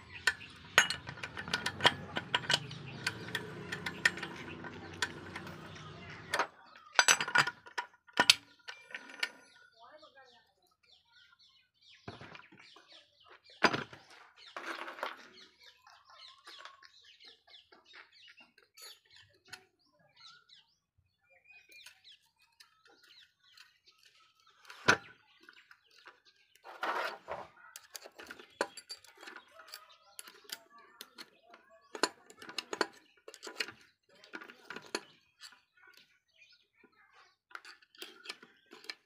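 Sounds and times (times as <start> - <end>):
metal gears clinking and scraping: 0.0 - 9.6
faint birds calling: 0.0 - 39.0.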